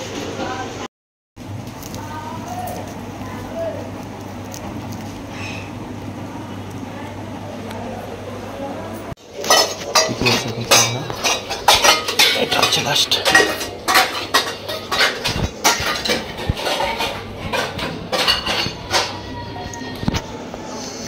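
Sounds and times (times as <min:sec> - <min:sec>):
metal utensils and dishes clattering: 0:09.2 - 0:20.2.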